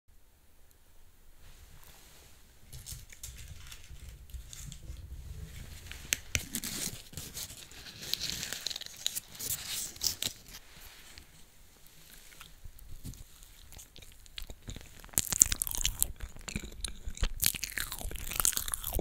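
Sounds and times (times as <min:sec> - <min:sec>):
paper liner crinkling and tearing: 0:02.8 - 0:10.6.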